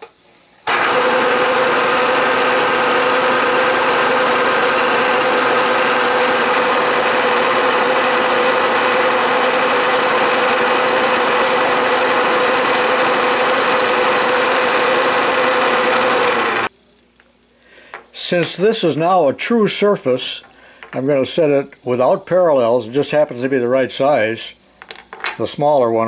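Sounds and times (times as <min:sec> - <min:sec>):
milling machine hum: 0:00.7 - 0:16.7.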